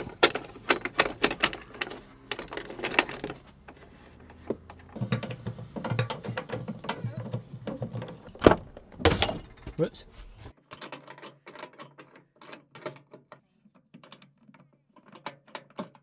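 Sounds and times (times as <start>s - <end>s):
metal clicks: 0.0s - 9.9s
sharp metal clunk: 7.8s - 9.8s.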